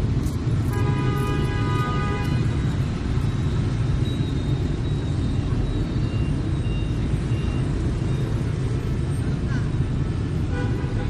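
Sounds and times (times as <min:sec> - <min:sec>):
city street traffic rumble: 0:00.0 - 0:11.0
motor scooters and cars passing: 0:00.0 - 0:11.0.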